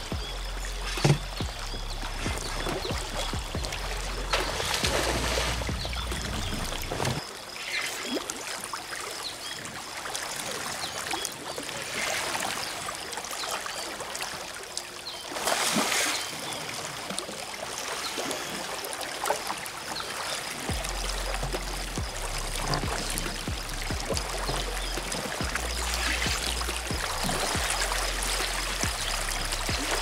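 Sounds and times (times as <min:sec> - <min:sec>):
river current rushing and lapping: 0:00.0 - 0:30.0
water splashing: 0:00.0 - 0:30.0.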